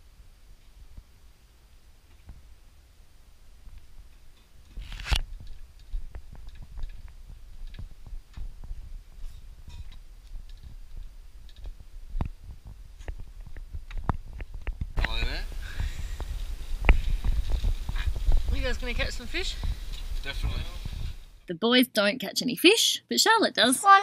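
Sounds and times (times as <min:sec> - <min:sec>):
low rumble: 0:06.0 - 0:21.4.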